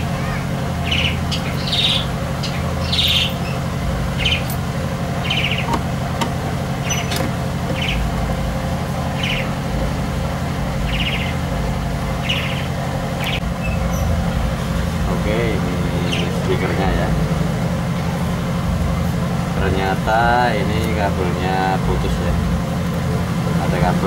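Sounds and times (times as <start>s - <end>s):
small bird chirping: 0.0s - 4.6s, 5.2s - 5.9s, 6.8s - 8.4s, 9.1s - 9.6s, 10.8s - 11.5s, 12.2s - 14.2s
steady low hum: 0.0s - 24.0s.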